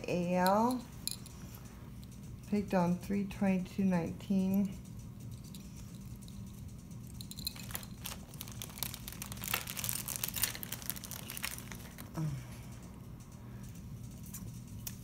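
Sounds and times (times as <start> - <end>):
plastic bag crinkling: 7.2 - 12.4.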